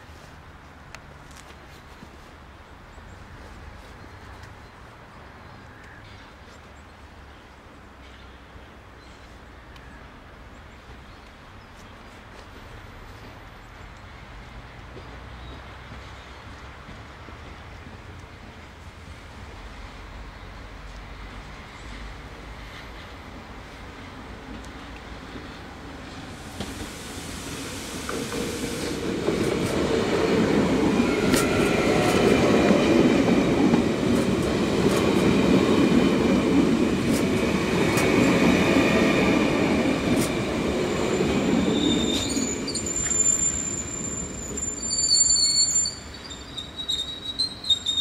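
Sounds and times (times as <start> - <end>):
train wheel and rail rumble: 0.0 - 48.0
high-pitched wheel squeals: 41.1 - 48.0.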